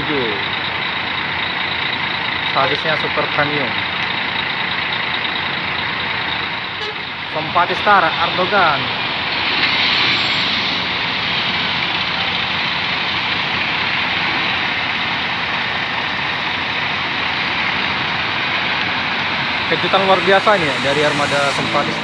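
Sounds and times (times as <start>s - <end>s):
coach diesel engine pulling away: 0.0s - 22.0s.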